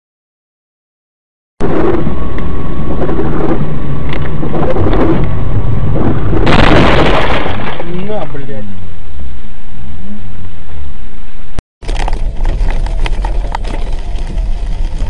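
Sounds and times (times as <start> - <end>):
distorted vehicle rumble: 1.6 - 15.0.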